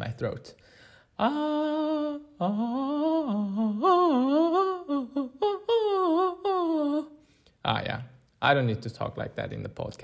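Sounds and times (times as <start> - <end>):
man singing vocal warm-up: 1.2 - 7.1.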